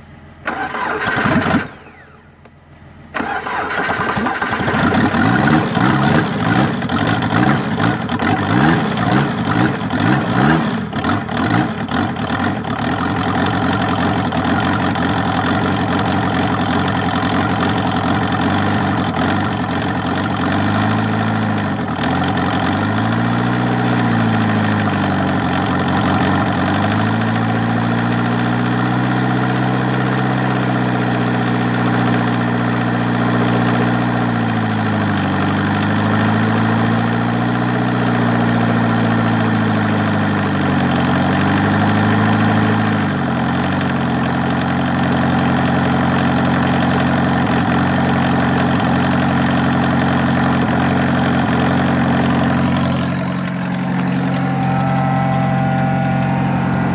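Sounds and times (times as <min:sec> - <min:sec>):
diesel engine revving and idling: 0:00.0 - 0:02.4, 0:03.1 - 0:56.9.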